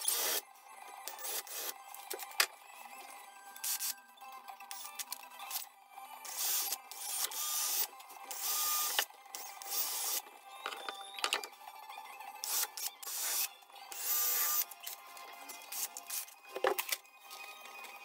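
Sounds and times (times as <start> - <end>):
cordless drill boring holes: 0.0 - 0.4, 6.3 - 10.2, 12.4 - 14.6.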